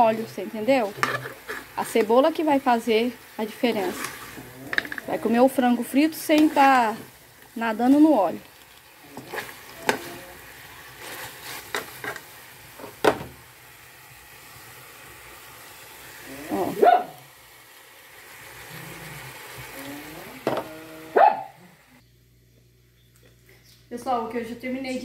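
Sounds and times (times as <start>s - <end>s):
chicken sizzling in a pot: 0.0s - 22.0s
metal spoon scraping a pot: 0.8s - 2.0s, 3.7s - 5.2s
dog barking: 16.8s - 17.2s, 21.2s - 21.7s.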